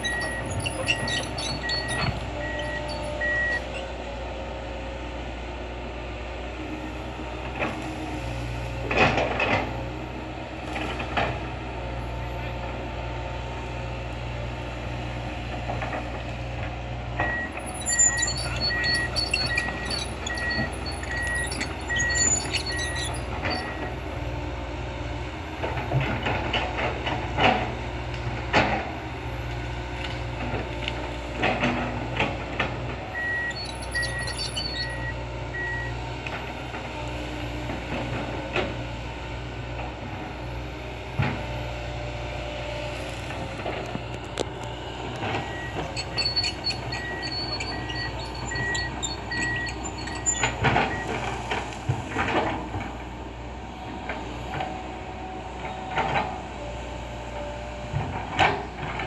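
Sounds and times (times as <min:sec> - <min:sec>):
warning alarm beeps: 0:00.0 - 0:03.6, 0:45.5 - 0:51.1
excavator diesel engine running: 0:00.0 - 0:59.0.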